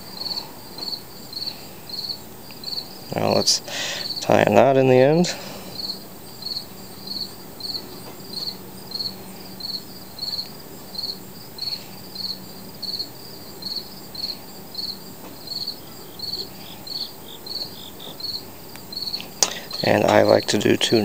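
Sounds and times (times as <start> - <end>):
insect chirping: 0.0 - 21.0.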